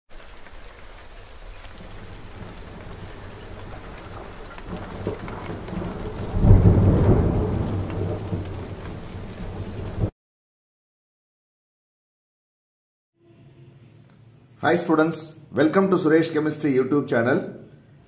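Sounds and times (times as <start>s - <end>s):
crackling hiss: 0.1s - 9.6s
deep rumbling boom: 1.9s - 10.1s.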